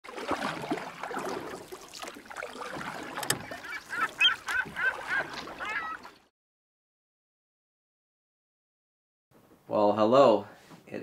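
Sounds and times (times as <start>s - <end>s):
water and boat noise: 0.0s - 6.3s
waterbird calls: 0.4s - 6.3s.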